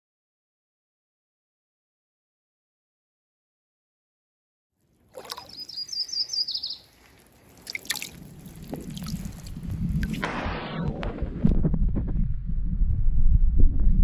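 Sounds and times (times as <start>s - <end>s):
faint trickle of water: 4.8s - 10.1s
songbird trill: 5.2s - 7.8s.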